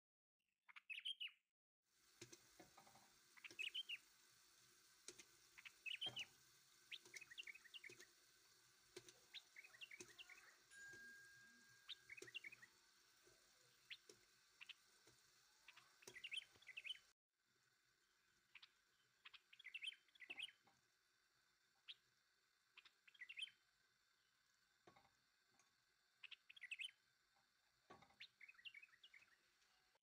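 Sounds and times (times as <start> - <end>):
birds twittering: 0.7 - 1.4, 3.3 - 4.2, 5.1 - 8.1, 9.0 - 10.7, 11.6 - 12.8, 13.6 - 17.1, 18.5 - 20.7, 22.7 - 23.6, 26.2 - 27.0, 28.0 - 29.6
faint steady background hiss: 2.0 - 17.1.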